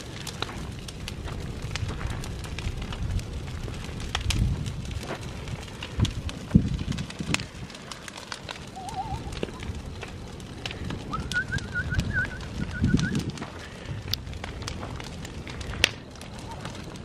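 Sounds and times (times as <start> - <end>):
fire crackling and popping: 0.0 - 17.0
low rumble of fire: 0.0 - 17.0
warbling whistle: 8.7 - 9.3, 11.1 - 13.2.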